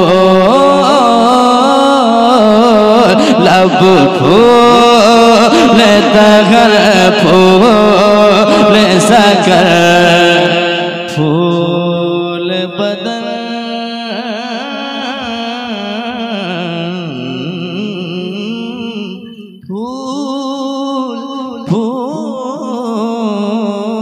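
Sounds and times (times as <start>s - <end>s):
man singing melismatic lines: 0.0s - 24.0s.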